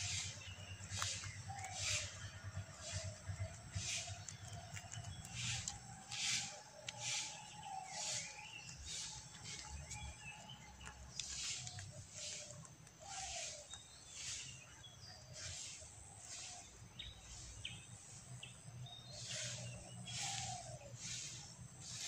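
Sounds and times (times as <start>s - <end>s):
rabbit chewing a dry leaf: 0.0s - 18.2s, 19.2s - 22.0s.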